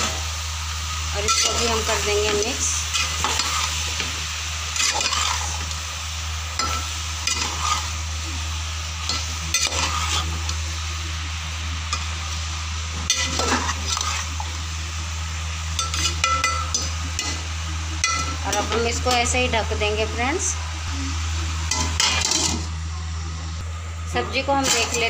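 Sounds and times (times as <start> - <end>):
frying sizzle: 0.0 - 23.4, 24.3 - 25.0
metal spoon scraping a pot: 4.8 - 5.6.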